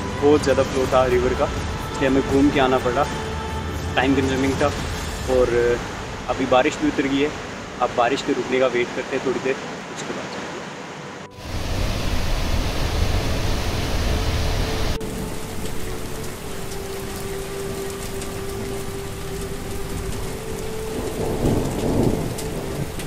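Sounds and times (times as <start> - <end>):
heavy rain falling: 0.0 - 23.0
single raindrops close by: 11.4 - 23.0
low rumble of thunder: 18.8 - 23.0.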